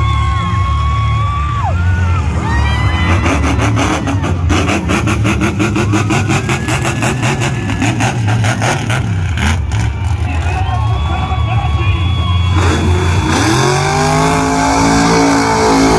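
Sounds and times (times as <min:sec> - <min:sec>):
loud truck engine passing: 0:00.0 - 0:15.9.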